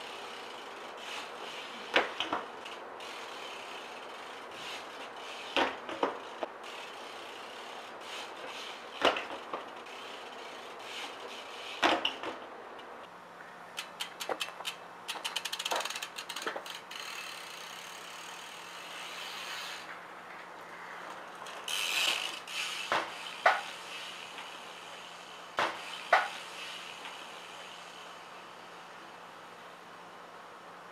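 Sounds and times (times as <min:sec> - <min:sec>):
bike landing on concrete: 0:01.9 - 0:02.7, 0:05.4 - 0:06.5, 0:08.5 - 0:09.7, 0:11.7 - 0:12.4, 0:21.1 - 0:24.6, 0:25.5 - 0:27.2
bike hub clicking rapidly: 0:13.7 - 0:19.9, 0:21.4 - 0:28.0.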